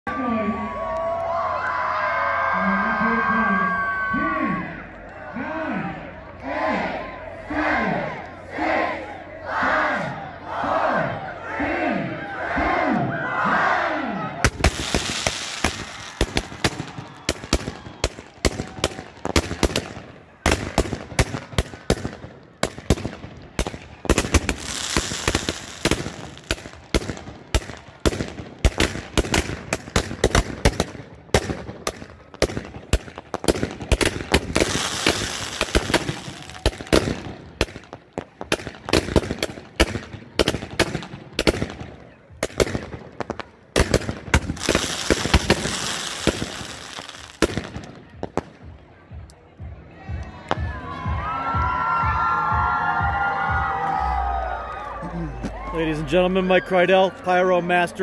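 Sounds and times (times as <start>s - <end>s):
fireworks bangs: 14.4s - 48.8s
fireworks hissing: 14.5s - 17.6s, 24.1s - 26.8s, 34.1s - 36.9s, 44.4s - 47.4s.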